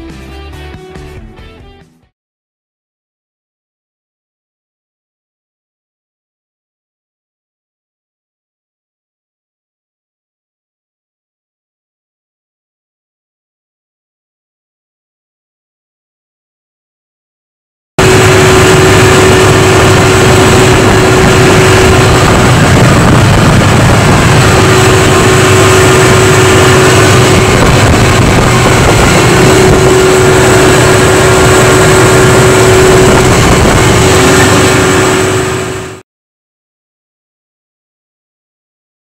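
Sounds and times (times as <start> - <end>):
gas engine generator droning: 18.0 - 36.0.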